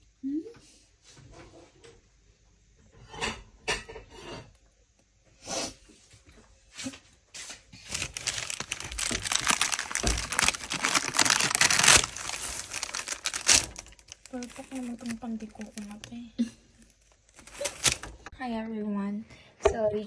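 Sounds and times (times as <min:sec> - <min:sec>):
baking paper crinkling: 0:06.8 - 0:18.3.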